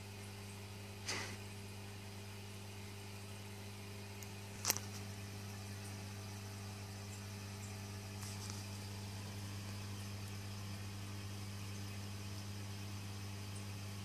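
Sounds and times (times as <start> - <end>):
aquarium filter pump humming: 0.0 - 14.0
faint hiss: 1.0 - 1.5.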